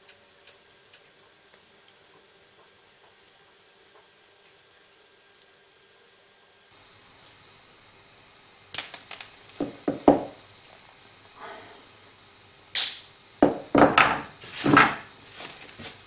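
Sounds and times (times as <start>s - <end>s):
tools knocking on wooden bench: 9.6s - 10.4s, 13.4s - 15.0s
sharp snap: 12.7s - 13.1s.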